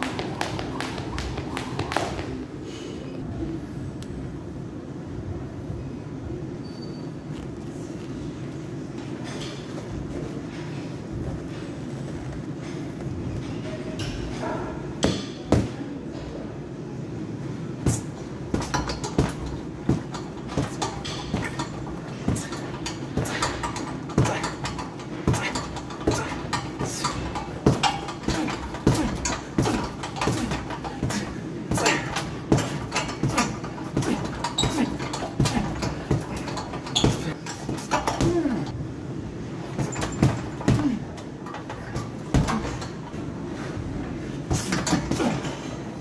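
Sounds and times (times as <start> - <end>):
gloves punching heavy bag: 0.0 - 2.3, 17.9 - 38.7, 39.8 - 41.1, 42.0 - 42.9
low background hum: 0.0 - 46.0.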